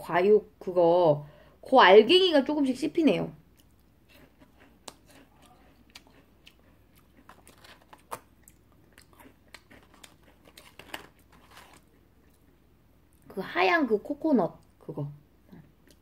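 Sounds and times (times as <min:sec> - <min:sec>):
cookie crunching while chewed: 0:03.5 - 0:12.6.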